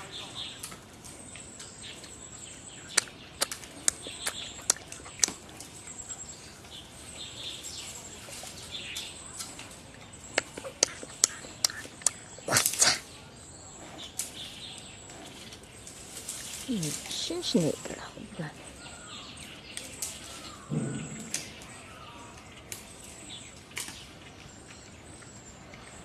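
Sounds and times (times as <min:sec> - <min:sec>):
faint bird chirps: 0:00.0 - 0:26.0
panda chewing bamboo: 0:00.4 - 0:26.0
bamboo stalks cracking: 0:02.9 - 0:05.7, 0:19.7 - 0:24.4.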